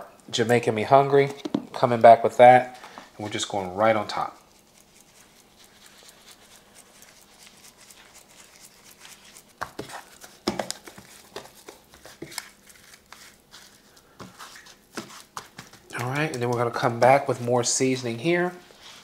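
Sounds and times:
faint crinkling: 0:02.8 - 0:19.0
meat mixed by hand in rub: 0:03.2 - 0:19.0.

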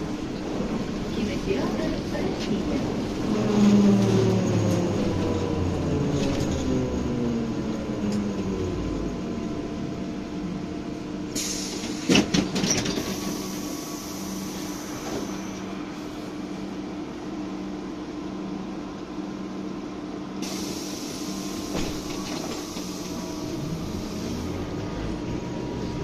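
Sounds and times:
trolleybus drive whine: 0:00.0 - 0:26.0
compressed air hiss: 0:20.4 - 0:21.6.

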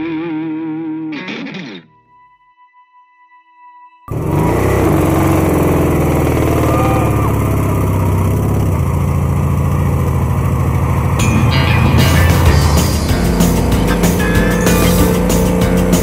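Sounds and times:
car engine running hard: 0:04.1 - 0:16.0.

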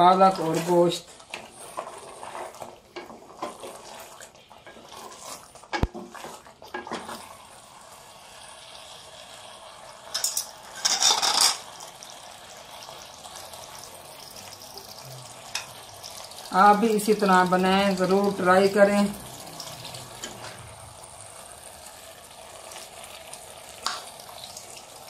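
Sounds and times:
wooden spatula scraping pot: 0:00.0 - 0:07.3
curry frying with faint sizzle: 0:00.0 - 0:25.0.

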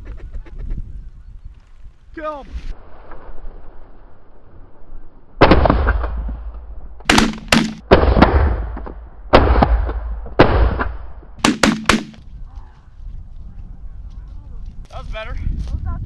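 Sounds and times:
shotgun shots echoing: 0:07.0 - 0:12.2.

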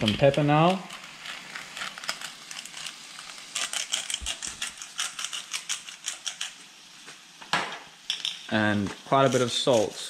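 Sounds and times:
pepper grinder crunching clicks: 0:00.0 - 0:06.6.

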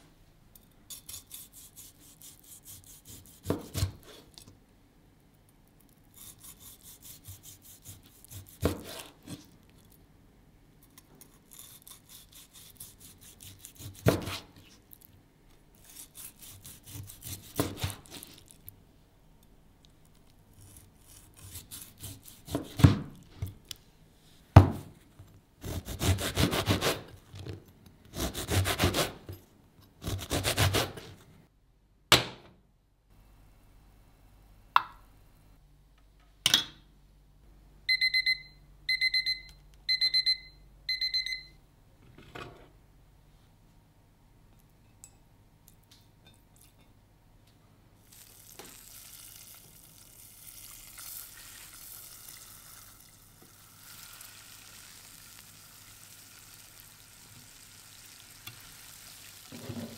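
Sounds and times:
knife sawing crusty bread: 0:00.9 - 0:04.2, 0:06.2 - 0:09.4, 0:11.5 - 0:14.5, 0:15.8 - 0:18.4, 0:20.6 - 0:22.9, 0:25.6 - 0:27.1, 0:28.1 - 0:29.2, 0:30.0 - 0:31.1
knife sawing through steak: 0:00.9 - 0:04.2, 0:06.2 - 0:09.2, 0:11.5 - 0:14.4, 0:15.9 - 0:18.2, 0:25.6 - 0:27.0, 0:28.2 - 0:29.2, 0:30.0 - 0:31.0.

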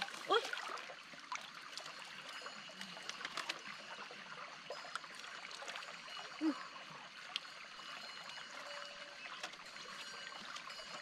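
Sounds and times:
small splashes: 0:00.0 - 0:03.7
water trickling and dripping: 0:00.0 - 0:11.0.

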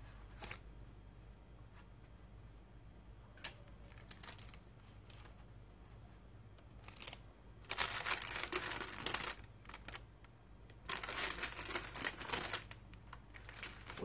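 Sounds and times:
baking paper crinkling: 0:00.1 - 0:00.7, 0:03.8 - 0:10.1, 0:10.7 - 0:14.0
bread crust crackling: 0:06.6 - 0:14.0.

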